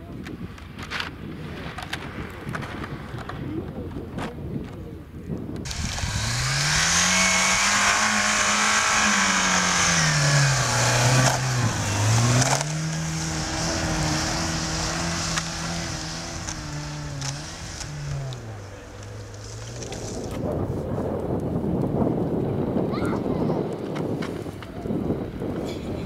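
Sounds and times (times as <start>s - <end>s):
car engine revving hard: 5.7s - 19.9s
wheels spinning in snow hissing: 5.7s - 21.0s.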